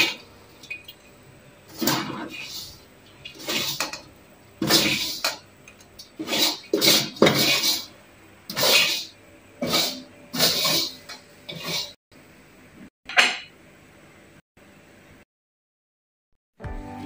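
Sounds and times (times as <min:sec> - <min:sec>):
metal spatula scraping wok: 0:06.2 - 0:07.9, 0:08.5 - 0:12.0.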